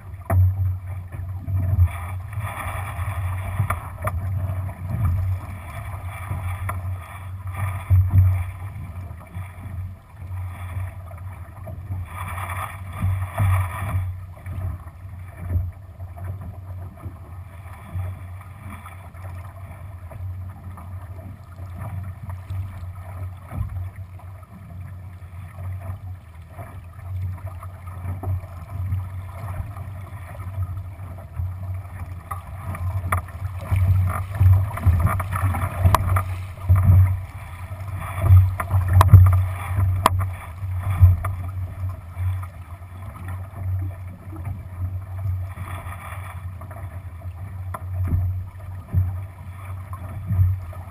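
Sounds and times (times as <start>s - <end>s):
water splashing along a hull: 0.0s - 50.9s.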